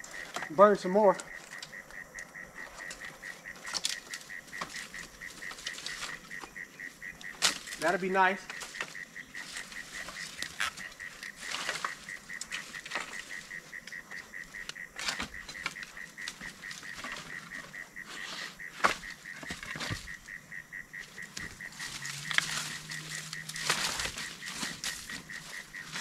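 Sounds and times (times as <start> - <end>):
high-pitched chirping pulse: 0.0 - 26.0
fire crackling and popping: 1.2 - 7.8.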